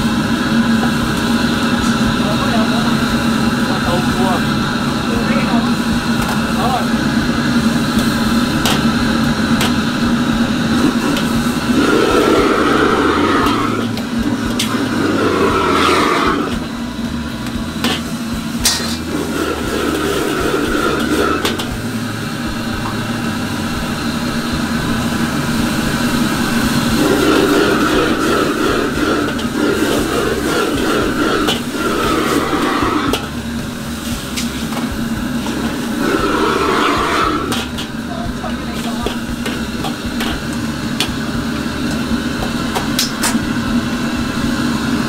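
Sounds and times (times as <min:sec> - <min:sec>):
gas wok burner roaring: 0:00.0 - 0:45.0
metal ladle clanking on wok: 0:17.8 - 0:19.1.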